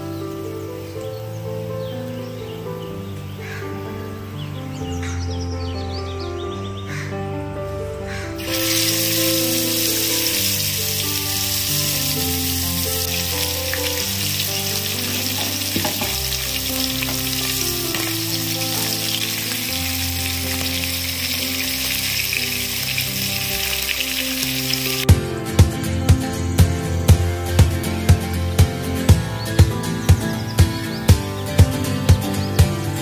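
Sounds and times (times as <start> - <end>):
soft background music: 0.0 - 33.0
fish deep-frying in hot oil: 8.4 - 25.2.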